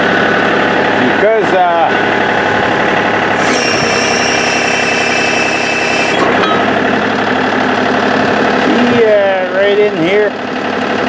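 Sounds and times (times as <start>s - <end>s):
tractor engine running: 0.0s - 11.0s
high whine: 2.4s - 8.6s.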